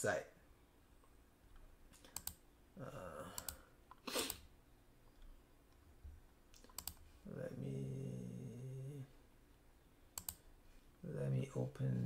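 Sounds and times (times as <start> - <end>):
computer keyboard and mouse clicks: 1.9 - 2.4, 3.4 - 4.4, 6.5 - 7.0, 10.2 - 10.4.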